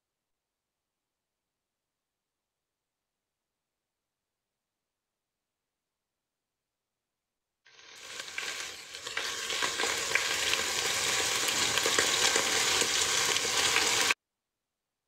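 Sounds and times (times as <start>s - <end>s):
chicken sizzling in butter and oil: 7.7s - 14.2s.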